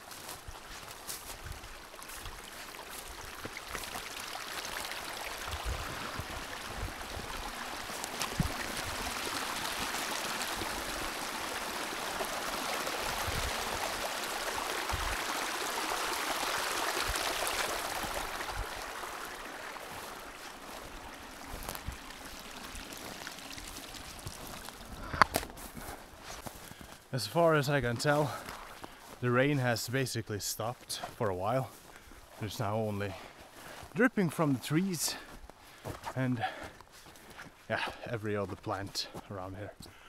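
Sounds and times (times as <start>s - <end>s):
stream rushing: 0.0s - 30.2s.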